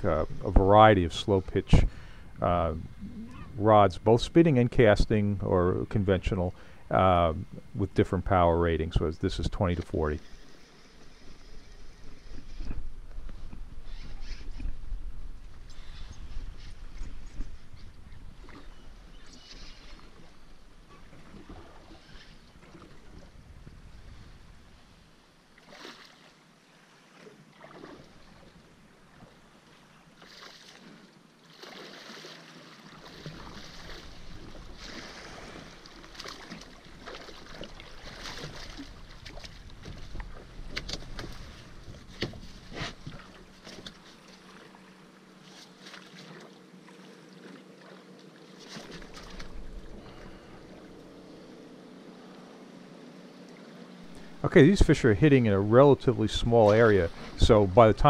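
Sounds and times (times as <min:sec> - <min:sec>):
water splashing: 0:25.5 - 0:29.4, 0:30.2 - 0:50.9, 0:53.5 - 0:58.0.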